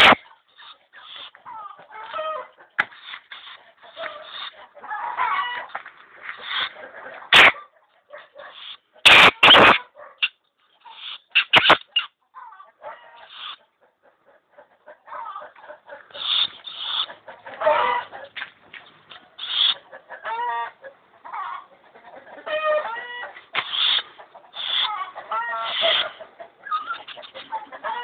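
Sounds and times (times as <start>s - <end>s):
animal clucking calls: 0.0s - 28.0s
animal chattering: 16.1s - 17.2s, 19.4s - 19.8s, 23.6s - 28.0s.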